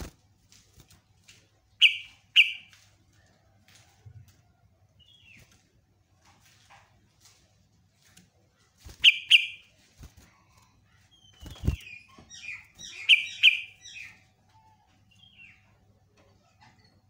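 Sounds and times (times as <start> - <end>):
bird chirping and chattering: 1.8 - 2.7, 8.9 - 15.8.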